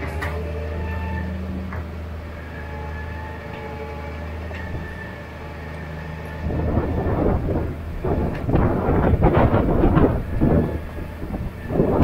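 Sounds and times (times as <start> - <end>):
steady low hum: 0.0 - 12.0
wind buffeting microphone: 6.2 - 12.0.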